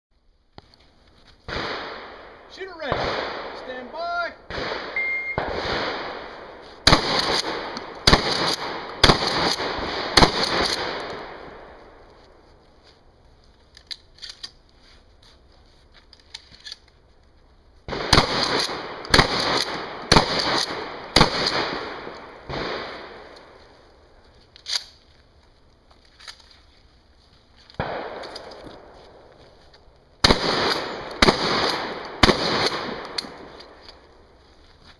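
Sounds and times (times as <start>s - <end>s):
shotgun shots echoing: 1.5s - 11.8s, 17.9s - 23.6s, 27.8s - 28.9s, 30.2s - 33.8s.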